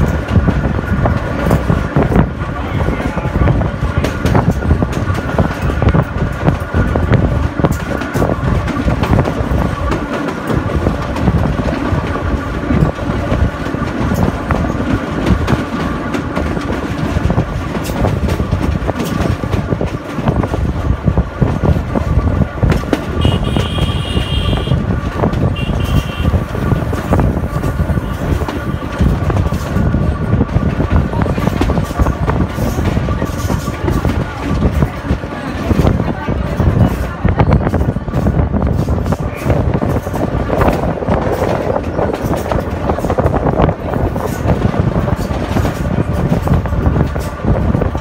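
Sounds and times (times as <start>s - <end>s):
train wheels clattering on track: 0.0s - 48.0s
high-pitched train toots: 23.0s - 28.9s.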